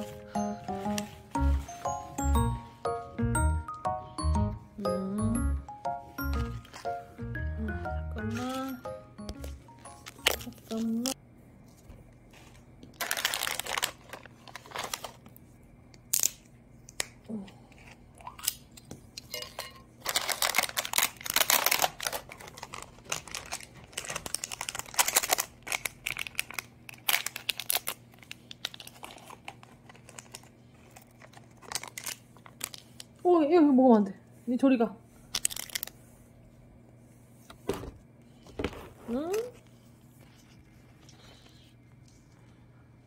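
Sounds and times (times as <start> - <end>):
foil sachets crinkling: 9.5 - 11.2, 12.4 - 15.4, 20.0 - 33.2, 35.3 - 36.0.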